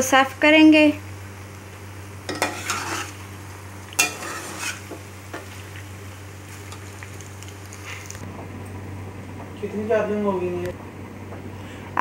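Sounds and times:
faint sizzling: 0.0 - 10.8
spoon scraping metal pan: 2.3 - 3.2, 3.9 - 5.5.

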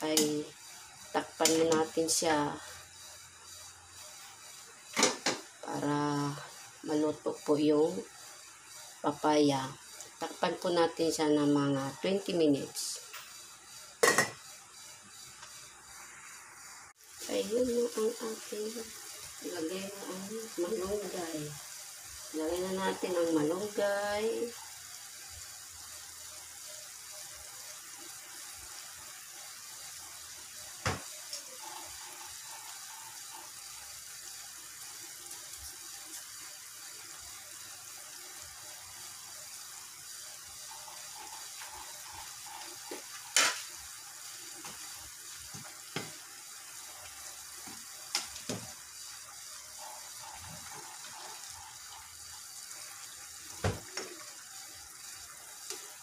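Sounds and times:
broth simmering bubbling hiss: 0.0 - 56.0.

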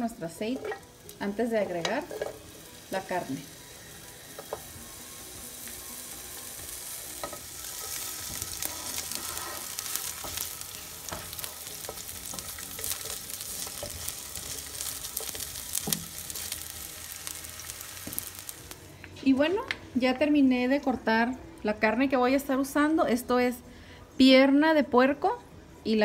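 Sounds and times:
onion sizzling in a frying pan: 0.0 - 18.9
spatula scraping a pan: 7.2 - 16.5.

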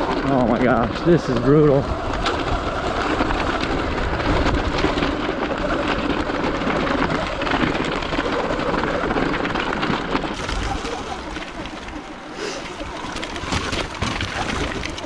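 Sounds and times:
small stones clattering: 0.0 - 15.0
tyres crunching over rocks: 0.0 - 15.0.

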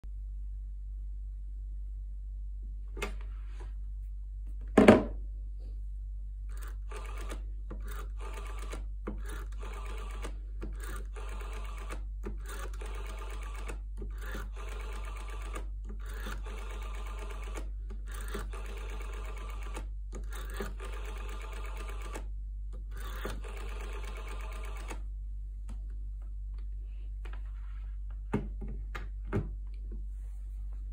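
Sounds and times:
rotary dial whirring and clicking: 6.5 - 25.1.

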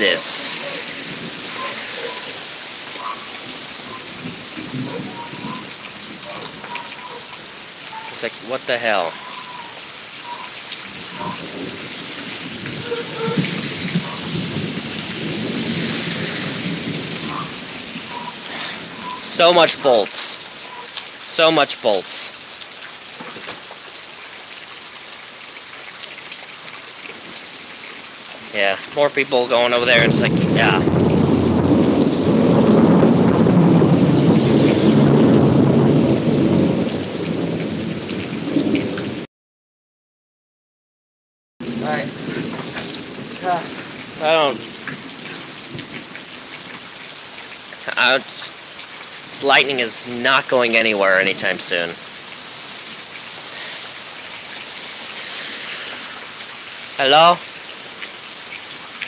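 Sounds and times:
thunder rumbling: 0.0 - 2.6, 3.5 - 6.7, 10.9 - 19.8, 29.8 - 39.2
steady rain: 0.0 - 39.3, 41.6 - 59.0.

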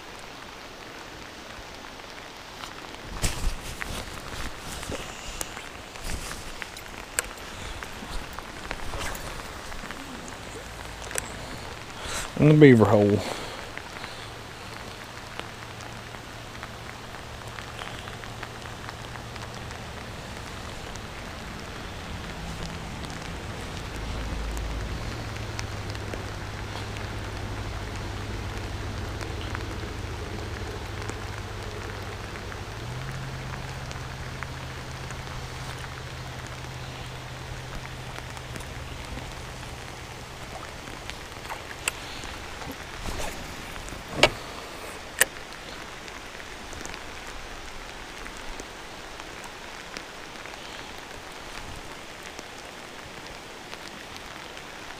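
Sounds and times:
heavy rain on water: 0.0 - 54.9.

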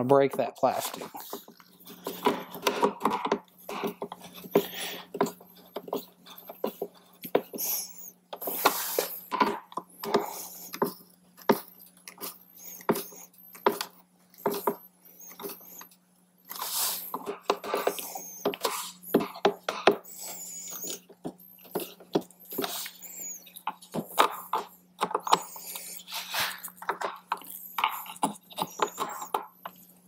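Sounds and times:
rubbing scrapes: 16.5 - 19.4, 25.3 - 29.3.

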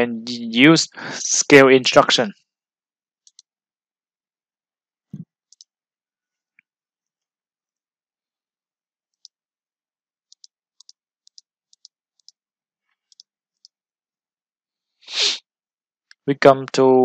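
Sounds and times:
computer mouse clicking: 3.2 - 3.5, 10.3 - 12.4, 13.1 - 13.8.

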